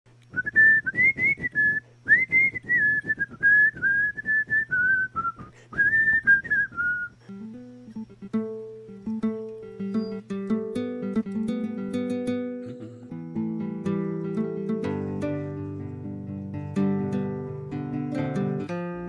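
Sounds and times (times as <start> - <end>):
whistled melody: 0.3 - 19.0
acoustic guitar picking: 0.6 - 19.0
rhythmic accompaniment: 7.3 - 19.0.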